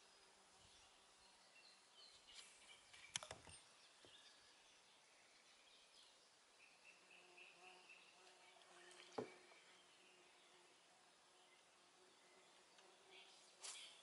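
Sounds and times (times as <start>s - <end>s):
faint bird chirps: 0.0s - 14.0s
faint steady buzz: 0.0s - 14.0s.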